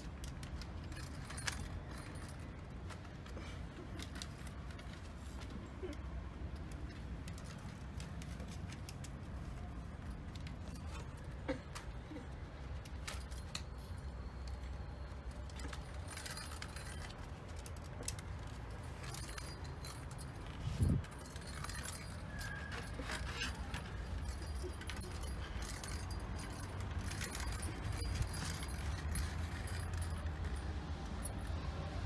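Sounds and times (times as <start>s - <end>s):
plastic balls rattling in toy: 6.4s - 31.7s.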